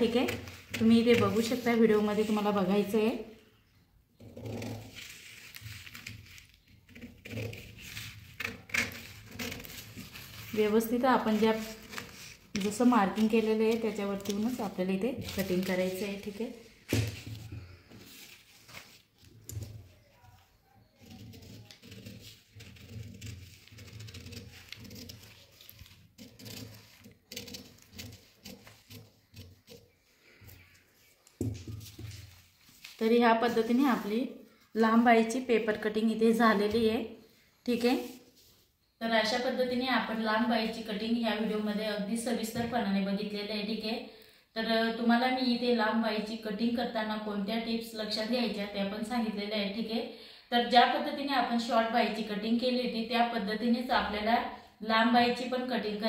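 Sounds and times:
scissors snipping paper: 0:04.8 - 0:16.4, 0:20.9 - 0:29.9
paper rustling: 0:04.8 - 0:34.1.

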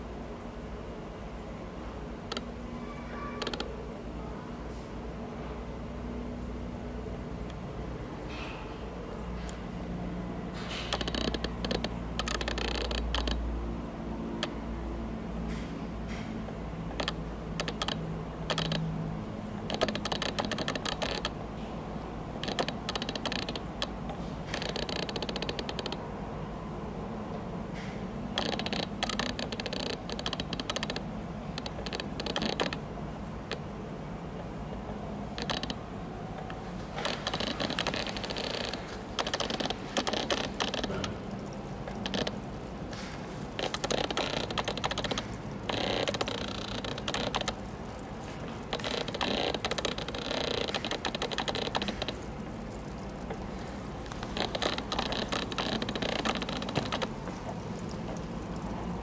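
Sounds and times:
aquarium filter pump humming: 0:00.0 - 0:59.0
rapid clicking and crackle: 0:10.6 - 0:13.4, 0:16.9 - 0:18.9, 0:19.6 - 0:21.4, 0:22.4 - 0:23.9, 0:28.4 - 0:31.0, 0:31.6 - 0:32.8, 0:36.4 - 0:59.0.

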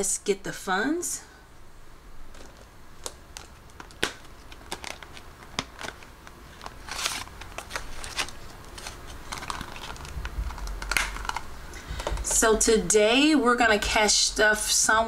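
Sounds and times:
paper money rustling: 0:03.7 - 0:11.3.

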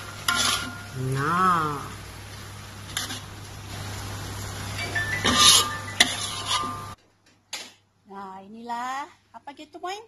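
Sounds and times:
metal spoon scraping wok: 0:00.0 - 0:01.0, 0:02.9 - 0:03.3, 0:05.0 - 0:07.0.

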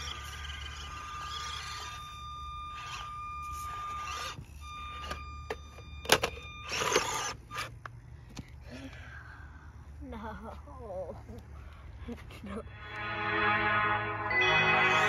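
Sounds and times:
electric motor whining: 0:00.0 - 0:07.7
toy truck tumbling on rocks: 0:02.8 - 0:07.7.

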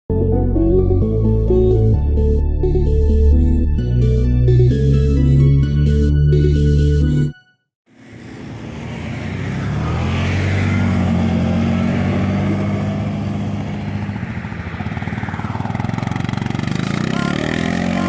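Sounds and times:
quad bike and utv engines: 0:07.9 - 0:18.0.

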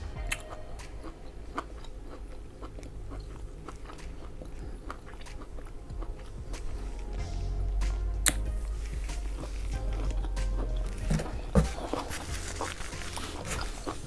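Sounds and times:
person chewing food: 0:00.2 - 0:07.4, 0:08.2 - 0:14.0.

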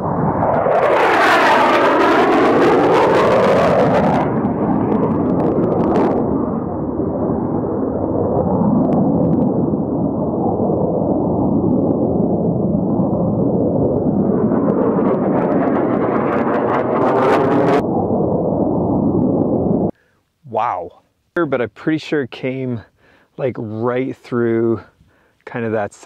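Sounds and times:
jet roaring overhead: 0:00.0 - 0:19.9.

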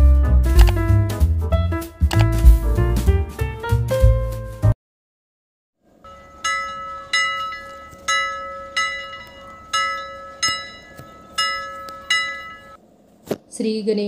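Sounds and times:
temple bell ringing: 0:06.0 - 0:12.8.

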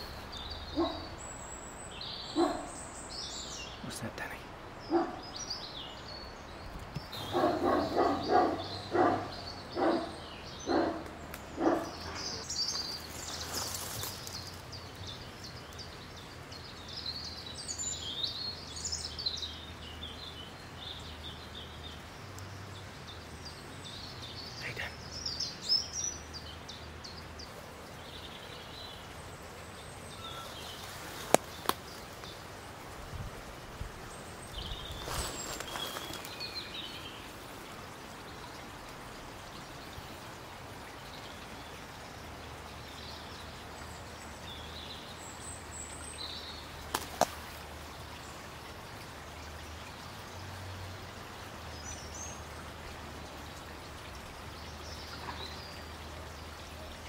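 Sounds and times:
outdoor background hiss: 0:00.0 - 0:57.0
rustling: 0:35.0 - 0:36.4.

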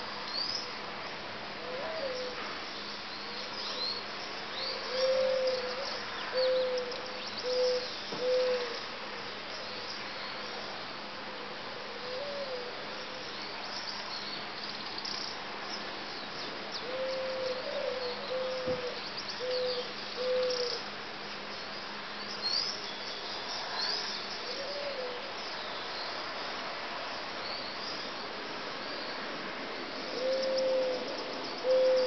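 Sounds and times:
steady hiss: 0:00.0 - 0:32.0
bird hooting: 0:04.8 - 0:08.8, 0:16.8 - 0:20.8, 0:30.2 - 0:31.0, 0:31.6 - 0:32.0.

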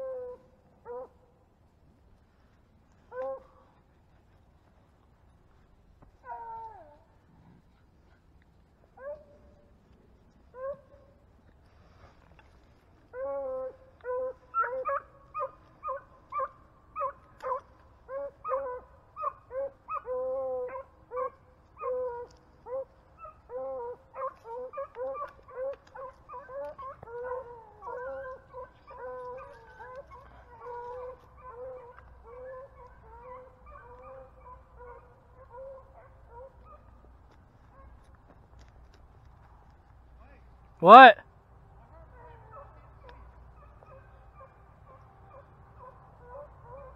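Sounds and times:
dogs baying: 0:13.1 - 0:38.1.

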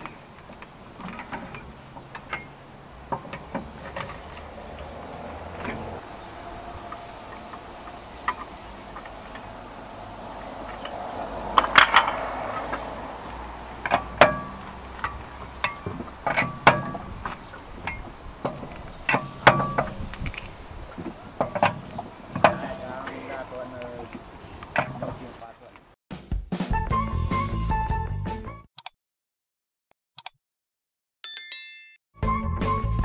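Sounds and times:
wheel brace clinking on wheel bolts: 0:00.0 - 0:25.8.

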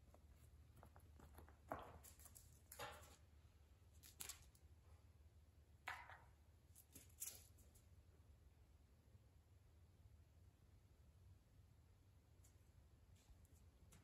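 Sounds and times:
cat paws skidding on tile floor: 0:00.0 - 0:03.3
toy mouse scuffing on tile: 0:00.0 - 0:03.3.

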